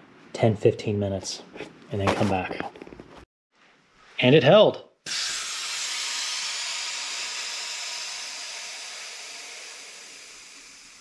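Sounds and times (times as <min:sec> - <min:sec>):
pressurised air hissing: 0:05.1 - 0:11.0.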